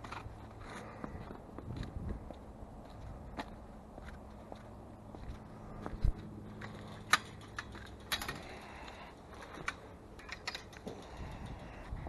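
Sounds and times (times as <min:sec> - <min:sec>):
footsteps crunching on snow: 0:00.0 - 0:06.9.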